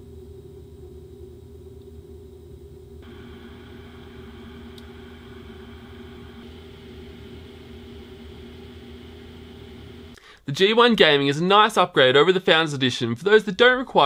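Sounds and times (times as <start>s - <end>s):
cooling fans whirring: 2.9s - 10.2s.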